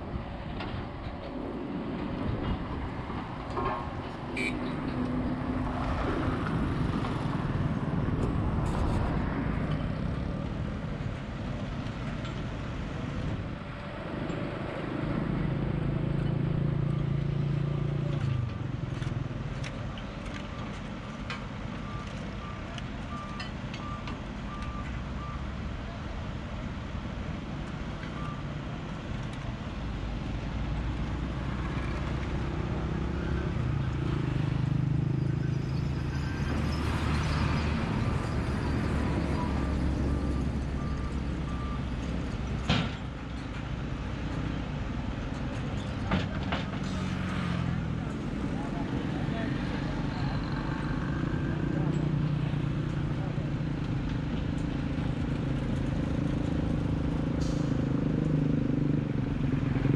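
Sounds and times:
vehicle engines on road bridge: 0.0 - 59.9
reversing alarm beeps: 21.8 - 25.5, 40.4 - 41.9.

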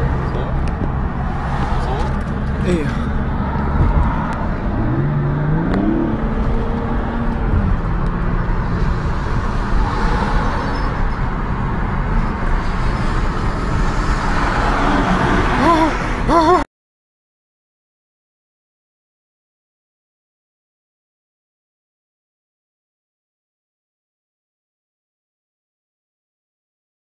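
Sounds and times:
engine accelerating: 0.0 - 10.9
car engine and road noise: 0.0 - 16.7.

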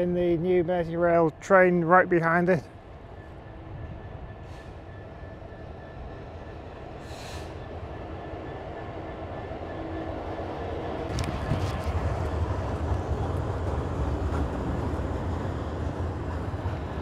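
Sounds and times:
diesel locomotive rumble: 0.0 - 17.0
short hisses: 7.0 - 7.6.

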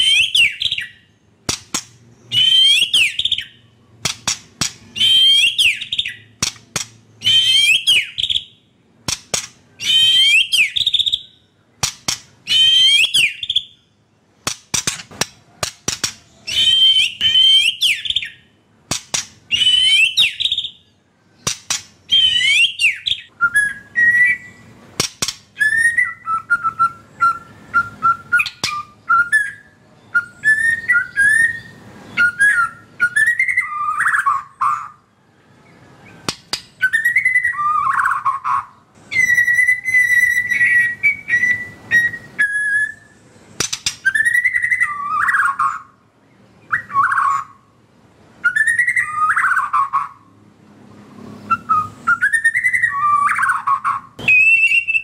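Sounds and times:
bird singing whistled phrases: 0.0 - 1.2, 2.1 - 6.4, 7.2 - 13.9, 16.0 - 18.5, 19.5 - 24.8, 25.5 - 35.0, 36.8 - 46.0, 46.6 - 47.7, 48.4 - 50.2, 51.4 - 55.0
sharp bird clicking notes: 1.4 - 2.0, 4.0 - 5.0, 5.9 - 7.0, 9.0 - 9.7, 11.8 - 12.4, 14.4 - 16.4, 18.9 - 19.8, 21.4 - 22.5, 24.9 - 25.6, 36.2 - 36.8, 43.6 - 44.2.

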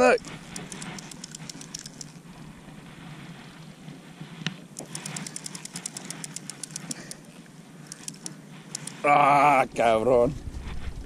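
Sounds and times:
fishing reel clicking: 0.2 - 2.2, 4.8 - 9.1.

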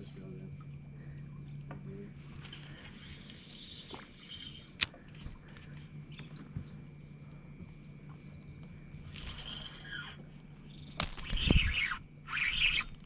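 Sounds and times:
steady low hum: 0.0 - 13.0
sharp reel click: 11.1 - 13.0.

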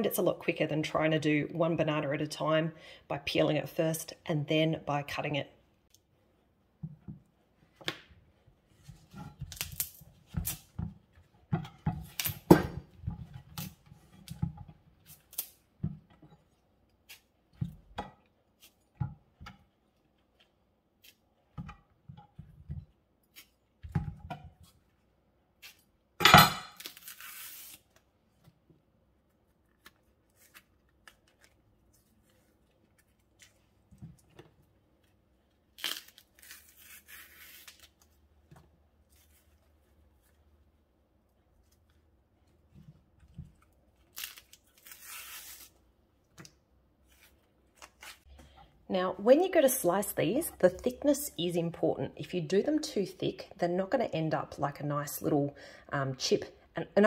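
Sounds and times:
banana peels tearing: 9.4 - 10.8, 15.0 - 15.7, 23.2 - 23.8, 26.7 - 28.1, 29.3 - 33.9, 35.0 - 38.4, 39.0 - 40.5, 43.5 - 48.4.

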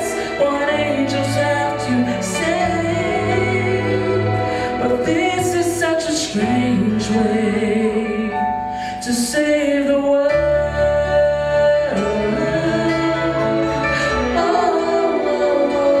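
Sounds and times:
instrumental accompaniment: 0.0 - 16.0
man singing a ballad: 4.8 - 13.6.

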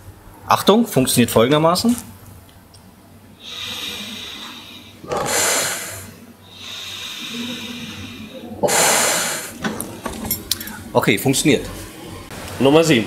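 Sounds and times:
sharp sniff through nose: 3.4 - 9.6
man blowing hissing breaths: 3.4 - 10.9.

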